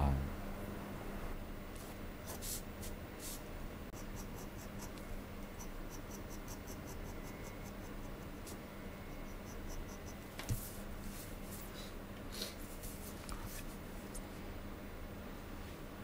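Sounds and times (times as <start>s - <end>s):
pen nib scratching on paper: 3.9s - 10.8s.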